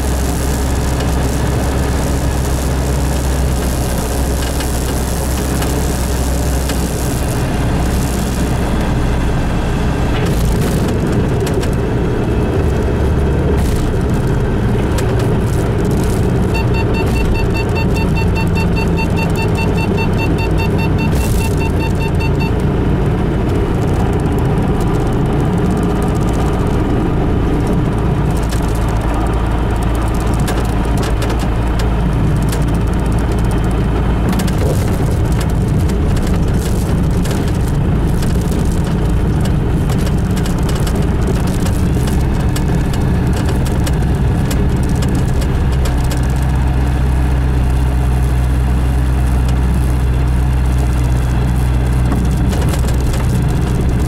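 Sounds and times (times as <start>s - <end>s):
rapid beeping: 15.7s - 22.7s.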